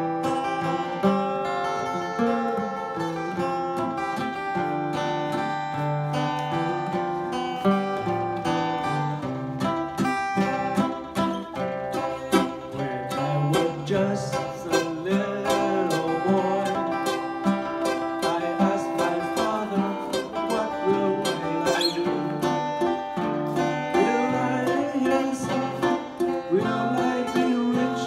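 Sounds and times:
acoustic guitar strumming: 0.0s - 28.0s
man singing: 6.4s - 7.4s, 12.4s - 23.0s, 23.6s - 28.0s.

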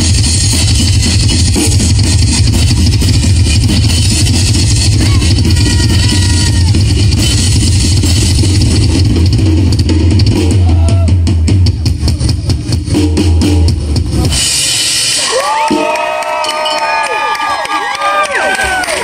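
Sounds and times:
rock drum kit solo: 0.0s - 16.4s
crowd cheering and whistling: 5.0s - 6.8s, 15.0s - 19.0s.

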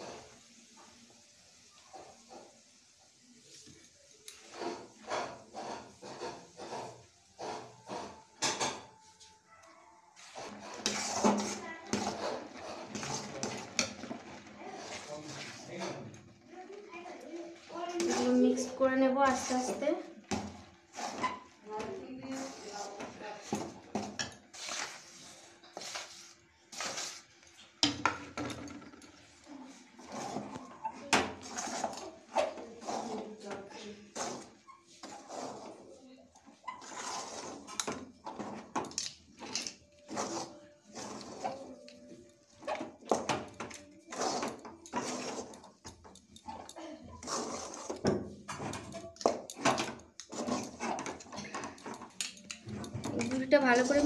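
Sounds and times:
metal spatula scraping dough: 4.3s - 9.3s, 10.2s - 54.0s
flour scraping and rustling: 10.2s - 20.1s, 20.9s - 23.6s, 24.5s - 27.7s, 31.4s - 36.1s, 36.7s - 37.7s, 44.1s - 45.7s, 47.2s - 48.0s.

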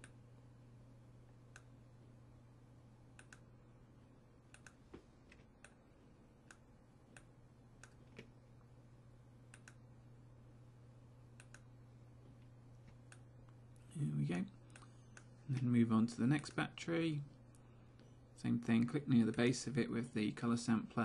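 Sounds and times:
low steady hum: 0.0s - 21.0s
computer mouse clicks: 3.2s - 3.5s, 4.5s - 5.8s, 6.4s - 8.3s, 9.5s - 9.8s, 11.4s - 11.7s, 14.7s - 15.3s.

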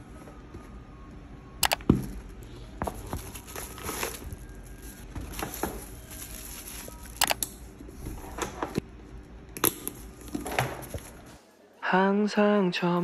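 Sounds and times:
tissue paper rustling: 2.6s - 7.2s.

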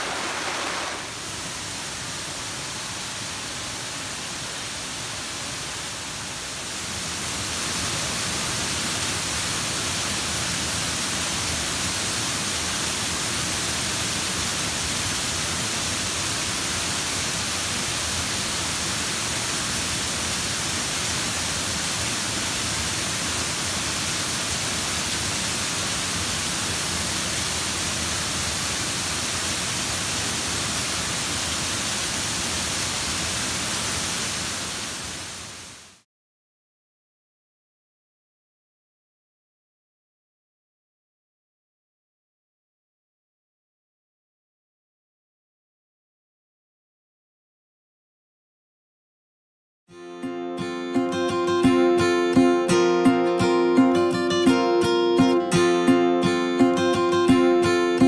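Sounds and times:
waterfall rushing: 0.0s - 36.0s, 50.6s - 58.0s.

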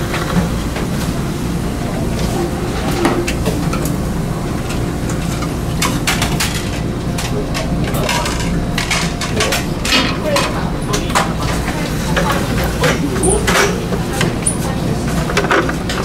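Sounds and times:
ship engines rumbling: 0.0s - 16.0s
utensils clinking on metal dishes: 4.6s - 16.0s.

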